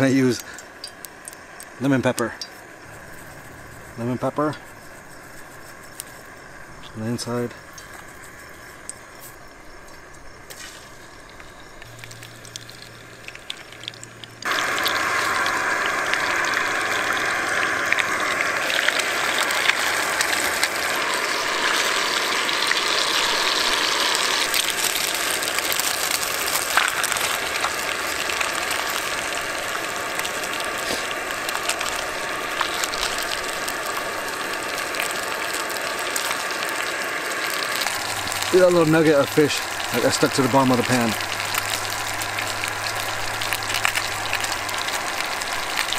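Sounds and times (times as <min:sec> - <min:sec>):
fish sizzling in hot oil: 0:00.0 - 0:45.9.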